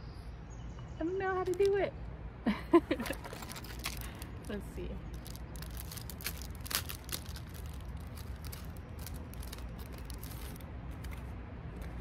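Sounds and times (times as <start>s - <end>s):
packaging clicks and rustles: 1.4s - 1.7s, 3.0s - 12.0s
steady low rumble: 2.0s - 12.0s.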